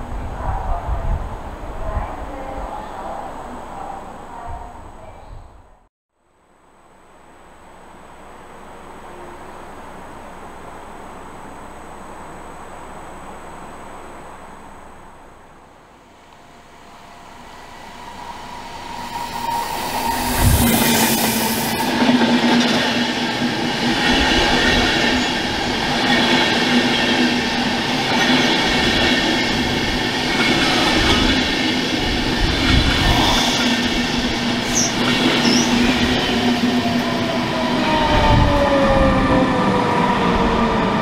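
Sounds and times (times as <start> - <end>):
locomotive whine falling in pitch: 7.3 - 22.1
train wheels rumbling: 7.4 - 41.0.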